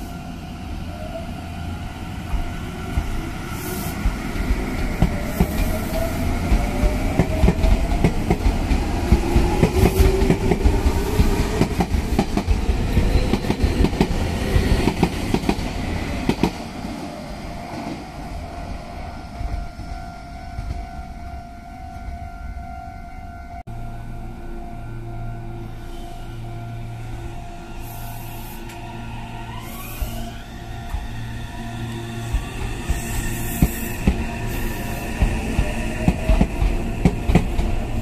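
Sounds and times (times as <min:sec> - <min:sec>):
train motor whine rising: 0:24.8 - 0:36.9.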